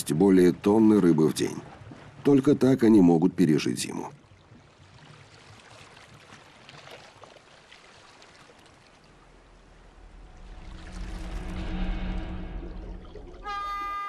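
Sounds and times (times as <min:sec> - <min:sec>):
sea water fizzing and gurgling: 0:00.0 - 0:14.0
low rumble: 0:09.1 - 0:14.0.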